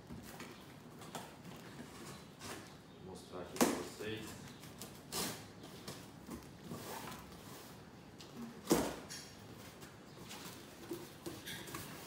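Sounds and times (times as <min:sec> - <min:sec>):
cardboard scraping and rustling: 0:05.1 - 0:07.9.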